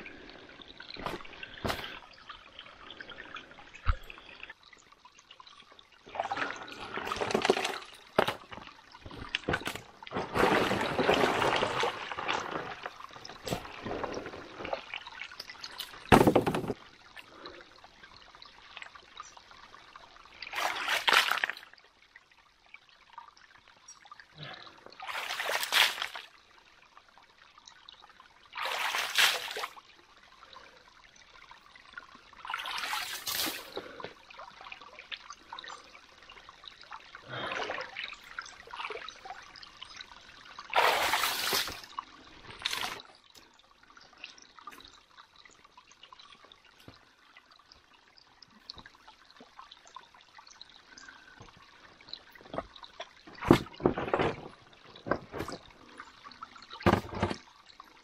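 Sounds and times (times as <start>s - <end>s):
water trickling: 0.0s - 58.0s
water splashing: 6.1s - 17.4s, 20.4s - 21.6s, 25.0s - 26.3s, 28.6s - 29.8s, 32.4s - 34.0s, 36.8s - 43.2s.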